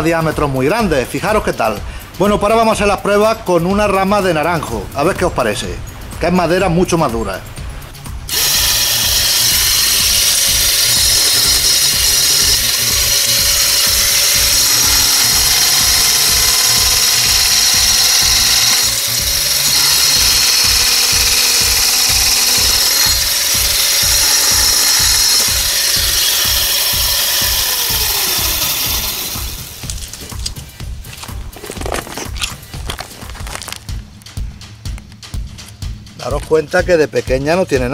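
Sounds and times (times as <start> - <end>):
background music with beat: 0.0 - 37.9
electric chainsaw cutting branch: 8.3 - 30.5.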